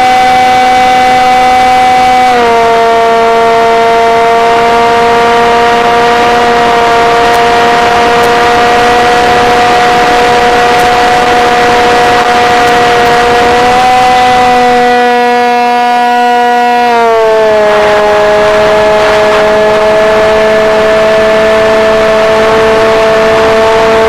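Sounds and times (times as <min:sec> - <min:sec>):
rushing wind: 0:00.0 - 0:16.0, 0:17.1 - 0:24.0
model airplane motor whine: 0:00.0 - 0:24.0.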